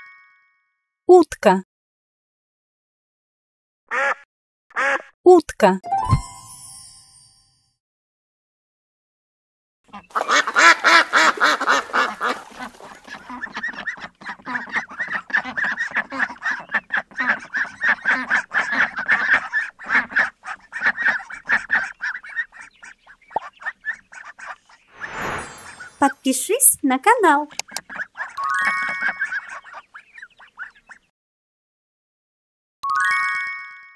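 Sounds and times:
ducks quacking: 0:03.9 - 0:04.2, 0:09.9 - 0:25.2, 0:27.6 - 0:31.1.

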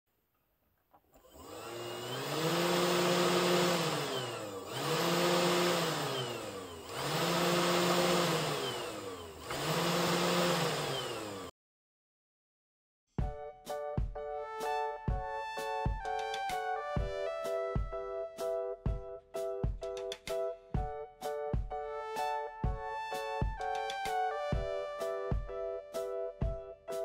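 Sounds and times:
spindle motor whining: 0:01.2 - 0:11.5.

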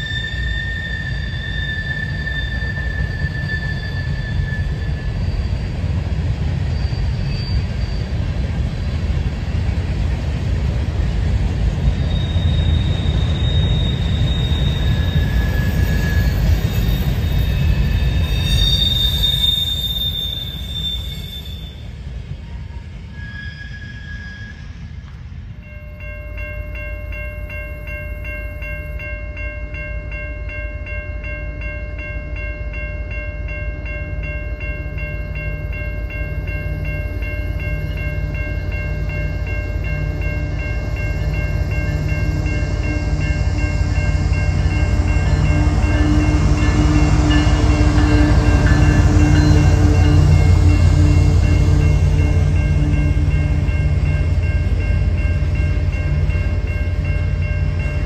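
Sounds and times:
wheel squeal: 0:00.0 - 0:05.9, 0:06.6 - 0:08.3, 0:12.0 - 0:21.9, 0:23.1 - 0:24.8
railway crossing bell ringing: 0:00.0 - 0:08.3, 0:11.2 - 0:21.9, 0:25.6 - 0:58.0
freight cars rumbling: 0:34.6 - 0:58.0.

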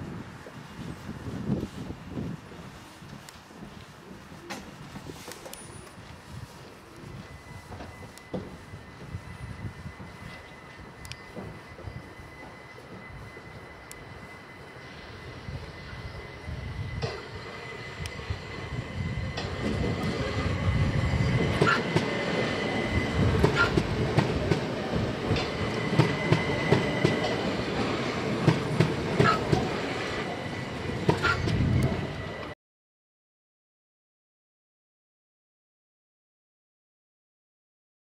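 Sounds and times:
train rumbling past: 0:00.0 - 0:32.6
train wheels clacking over rail joints: 0:23.3 - 0:29.8, 0:31.0 - 0:31.7.

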